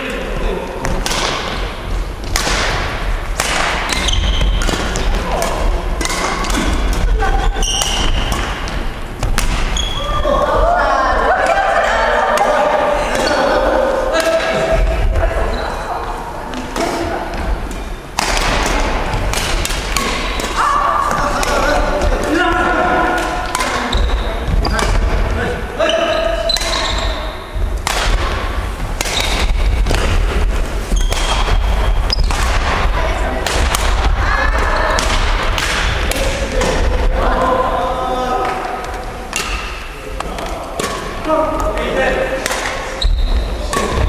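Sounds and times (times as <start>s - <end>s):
badminton rackets hitting shuttlecock: 0.8s - 10.1s, 16.5s - 25.3s, 26.4s - 37.0s, 38.4s - 44.0s.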